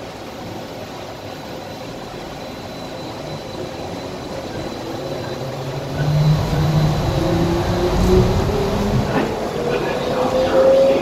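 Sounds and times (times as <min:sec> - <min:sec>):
train running noise: 0:00.0 - 0:11.0
motor whine rising: 0:02.8 - 0:11.0.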